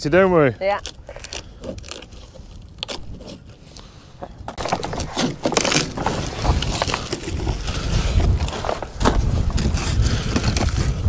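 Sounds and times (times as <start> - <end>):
hand tool scraping rotten wood: 0.8 - 11.0.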